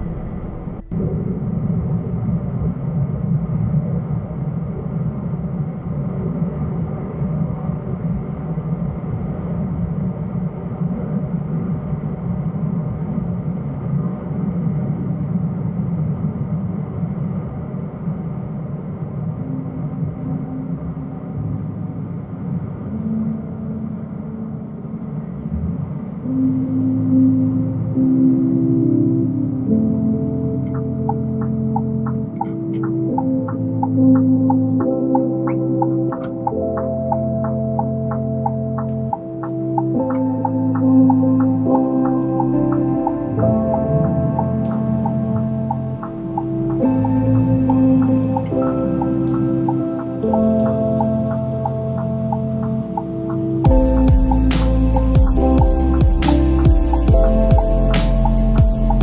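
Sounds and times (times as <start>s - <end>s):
truck engine drone: 0.0s - 2.4s.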